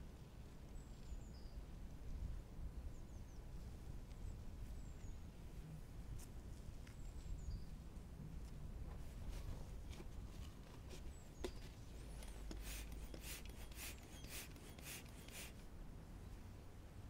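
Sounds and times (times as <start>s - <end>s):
hand pump airy hisses: 12.0s - 15.6s.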